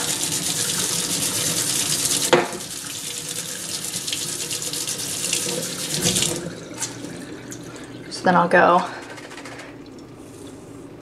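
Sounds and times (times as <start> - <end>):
tap water running into a sink: 0.0 - 8.2.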